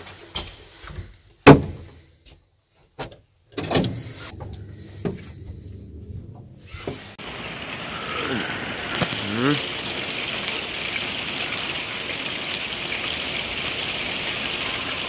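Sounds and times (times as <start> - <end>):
lift car humming: 4.0 - 8.2.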